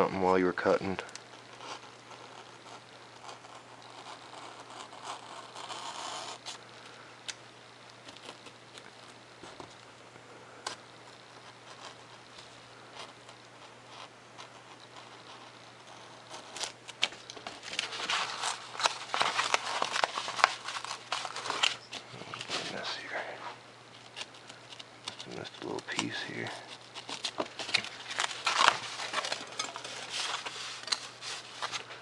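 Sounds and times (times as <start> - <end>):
knife cutting foam: 1.6 - 6.6
foam and paper crackling: 10.6 - 32.0.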